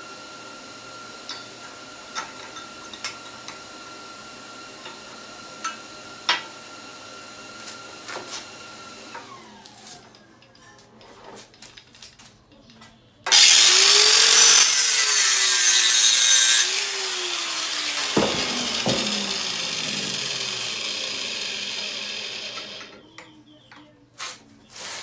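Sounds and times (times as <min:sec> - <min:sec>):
abrasive power tool on metal: 0:13.3 - 0:23.0.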